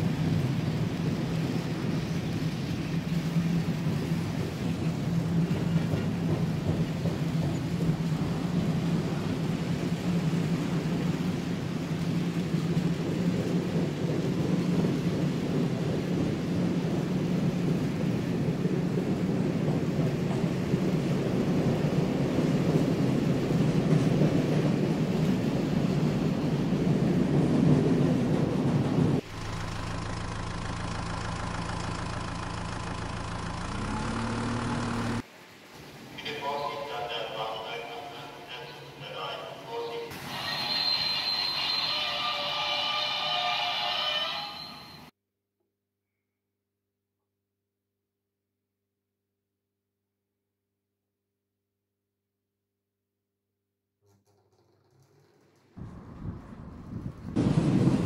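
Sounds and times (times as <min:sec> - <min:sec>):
metal wheels rumbling on track: 0:00.0 - 0:35.2, 0:54.0 - 0:58.0
locomotive motors whirring: 0:28.9 - 0:35.2
quieter steady hum: 0:29.2 - 0:35.2.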